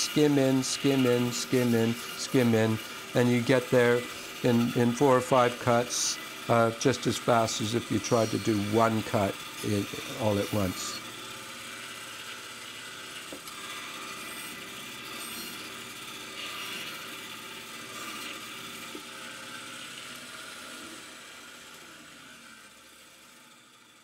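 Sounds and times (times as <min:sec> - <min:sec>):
saw blade rasping wood: 0:00.0 - 0:11.0
bandsaw running: 0:00.0 - 0:24.0.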